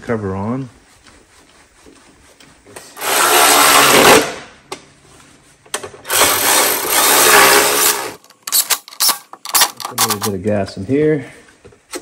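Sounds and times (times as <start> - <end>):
cordless power driver whirring: 3.0 - 4.1, 6.1 - 8.2.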